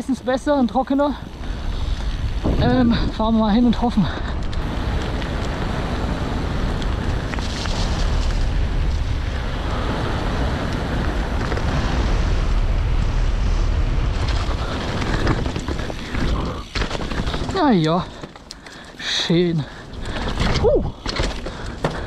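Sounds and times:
bike tyres rolling on dirt: 0.0s - 22.0s
wind buffeting microphone: 0.0s - 22.0s.

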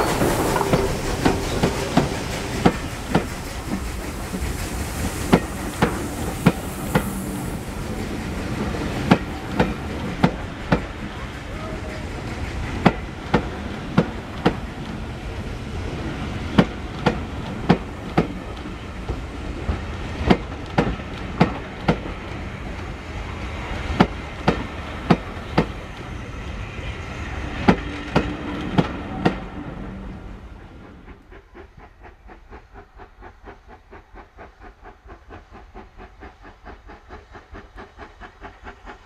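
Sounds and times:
train wheel clicks: 0.0s - 7.2s, 8.0s - 11.2s, 16.6s - 22.4s, 24.0s - 26.1s, 31.1s - 39.0s
train carriages rumbling: 0.0s - 39.0s.

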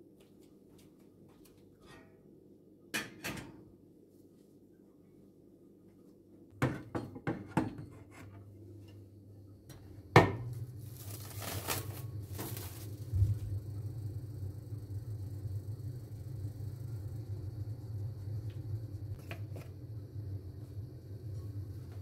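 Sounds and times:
low steady hum: 7.9s - 22.0s
plastic wrap crinkling: 10.8s - 13.5s.

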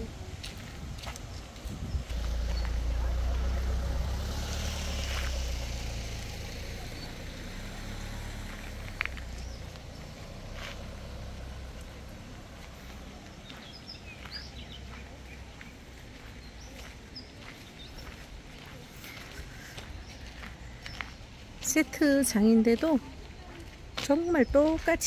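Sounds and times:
low rumble: 0.7s - 16.8s.

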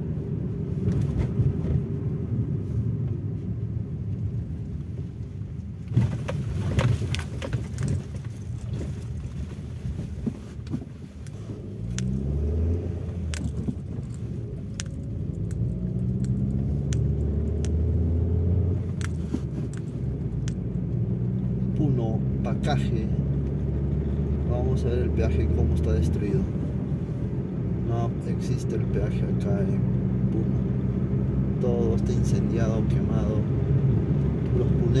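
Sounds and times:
vehicle engine and road noise: 0.0s - 35.0s
light rattling and clicking: 5.9s - 12.2s, 13.0s - 18.0s, 18.7s - 20.9s.

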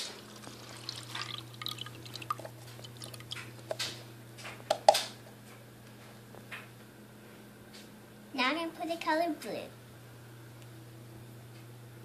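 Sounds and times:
water pouring and dripping into bowl: 0.0s - 4.0s.

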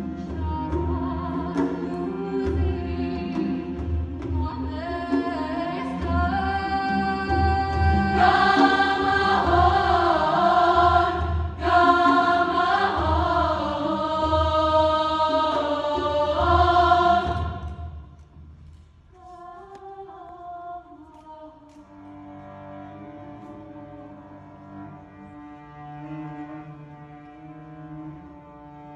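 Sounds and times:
cello playing: 0.0s - 17.7s, 21.8s - 28.9s
women's choir singing: 5.1s - 17.9s.

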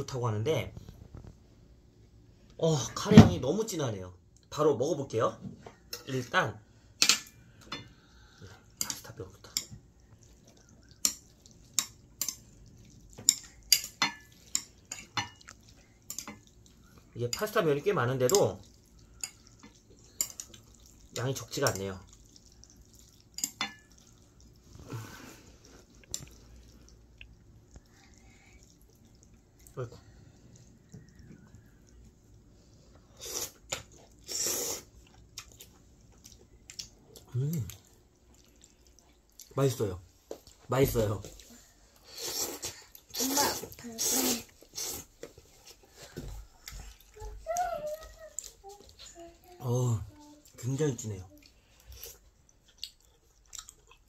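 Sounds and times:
chewing: 7.5s - 54.0s
person slurping noodles: 33.1s - 33.6s, 34.2s - 34.9s, 42.0s - 45.1s.

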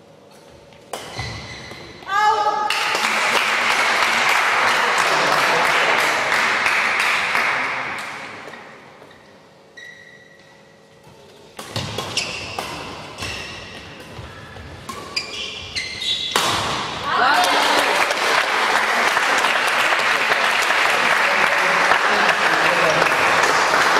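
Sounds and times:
shoes squeaking on court floor: 0.2s - 2.1s, 8.4s - 16.9s
rackets hitting shuttlecock: 0.8s - 2.0s, 11.5s - 17.5s
hall applause: 17.1s - 23.9s.

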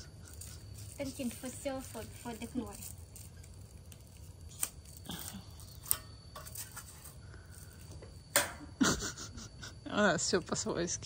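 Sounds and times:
gas stove parts clicking: 0.8s - 7.1s, 7.7s - 8.7s.

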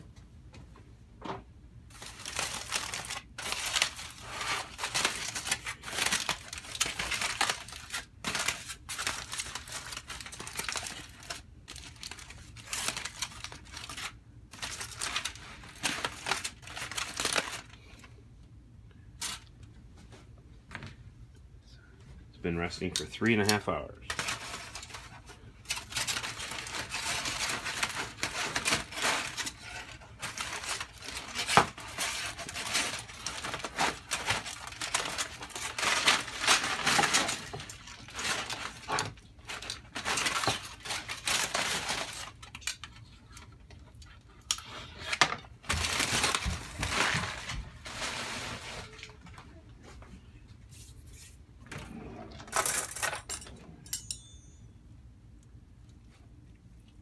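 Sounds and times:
aluminium foil crinkling: 1.9s - 18.1s, 22.9s - 49.6s
cutlery rattling in a drawer: 52.5s - 54.4s
metal tongs clicking: 53.9s - 54.3s.

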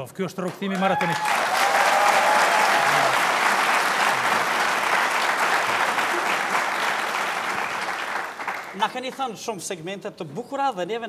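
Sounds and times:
audience applauding: 0.4s - 9.2s.

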